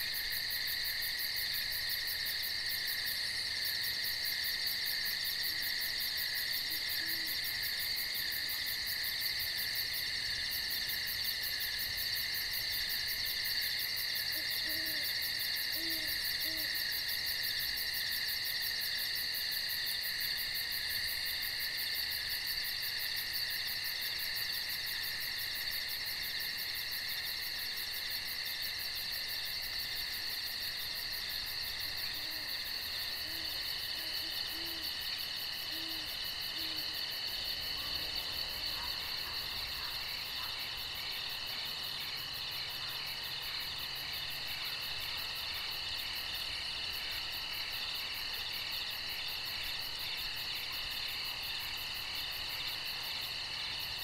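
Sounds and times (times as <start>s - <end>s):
crickets and katydids buzzing: 0.0s - 54.0s
owl hooting: 15.8s - 16.8s.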